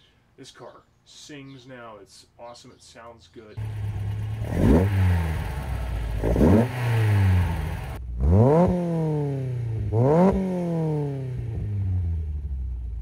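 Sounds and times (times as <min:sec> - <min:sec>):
car engine idling and revving: 0:03.6 - 0:13.0.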